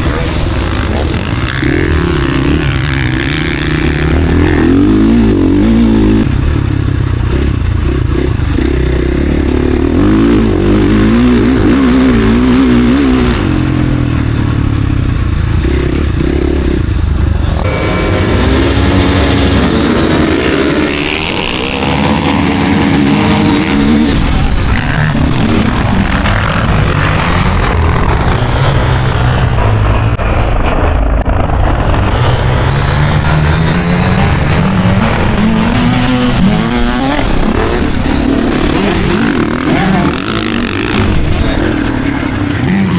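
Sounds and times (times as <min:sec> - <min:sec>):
motocross bike engine revving: 0:00.0 - 0:42.9
higher steady engine note: 0:16.9 - 0:20.2.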